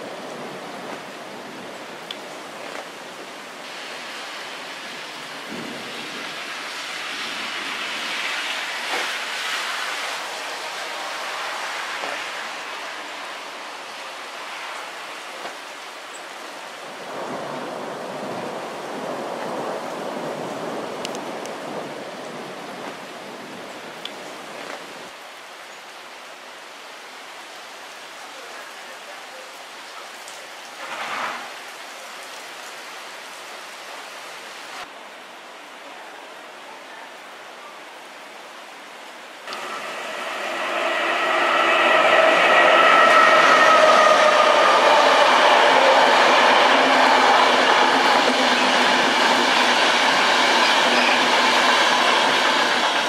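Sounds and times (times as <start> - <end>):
heavy rain falling: 0.0 - 53.0.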